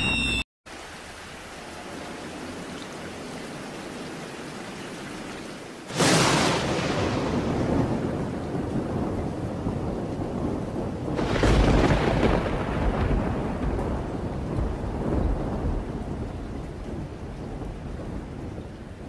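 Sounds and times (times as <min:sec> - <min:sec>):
thunder rumbling and cracking: 0:05.9 - 0:19.0.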